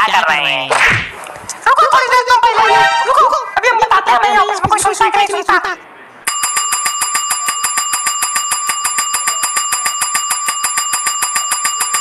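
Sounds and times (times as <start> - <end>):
desk call bell dinging: 6.3 - 12.0.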